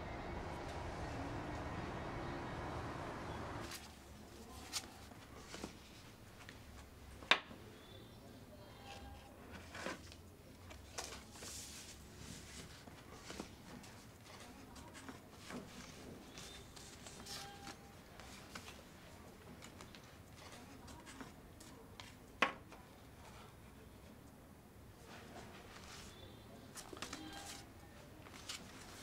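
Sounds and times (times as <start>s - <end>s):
street ambience: 0.0s - 4.2s
paper rustling: 3.6s - 6.9s, 8.9s - 22.2s, 25.1s - 29.0s.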